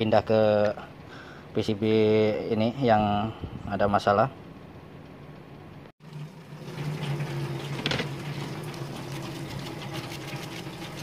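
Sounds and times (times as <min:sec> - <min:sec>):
low machine hum: 0:00.0 - 0:11.0
brush scrubbing circuit board: 0:08.9 - 0:11.0.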